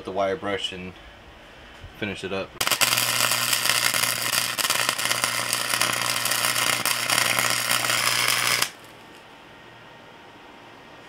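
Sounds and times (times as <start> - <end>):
welding arc crackling: 2.6 - 9.2.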